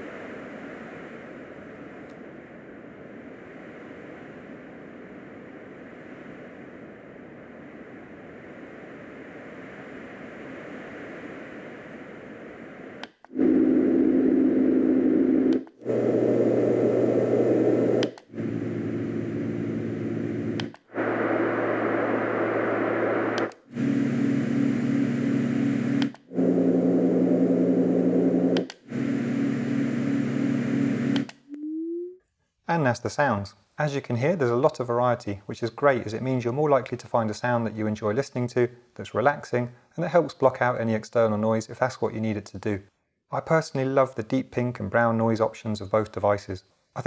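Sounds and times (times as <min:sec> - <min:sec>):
quiet rushing white noise: 0:00.0 - 0:26.0.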